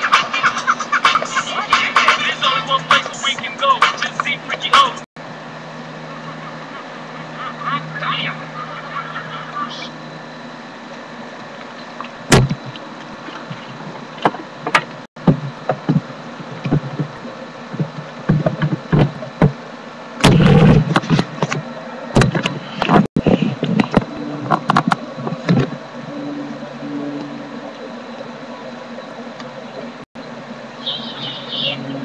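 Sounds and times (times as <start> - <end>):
steady low hum: 0.0 - 32.0
knocks and rubbing on microphone: 13.4 - 19.6, 20.2 - 25.8.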